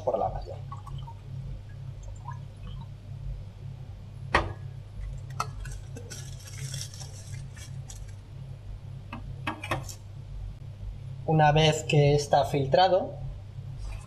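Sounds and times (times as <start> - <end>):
steady low hum: 0.0 - 14.0
aluminium foil crinkling: 5.0 - 8.2.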